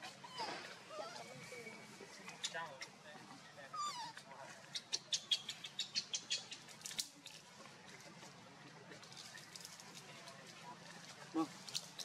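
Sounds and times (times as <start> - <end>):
dry leaves and twigs crackling: 8.9 - 12.0.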